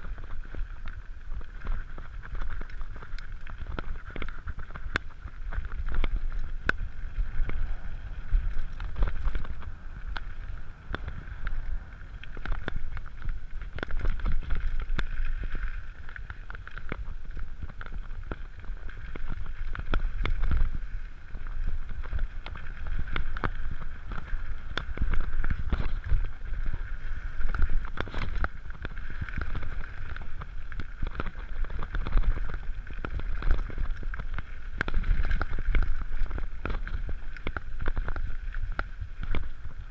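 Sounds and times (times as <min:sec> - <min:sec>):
tyres crunching over stones: 0:00.1 - 0:39.5
wind buffeting microphone: 0:01.2 - 0:15.4.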